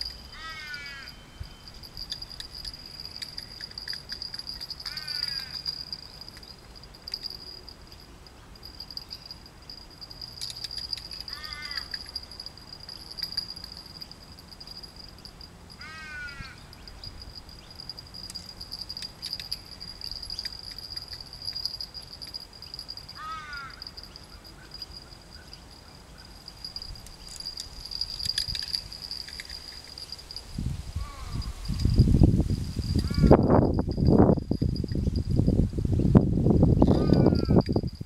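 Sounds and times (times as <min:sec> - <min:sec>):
high-pitched insect drone: 0:00.0 - 0:35.8, 0:36.7 - 0:38.0
wind rumble: 0:00.0 - 0:38.0
crow cawing: 0:00.3 - 0:01.2, 0:04.8 - 0:05.7, 0:11.3 - 0:12.0, 0:15.8 - 0:16.7, 0:23.2 - 0:23.9, 0:31.0 - 0:31.6.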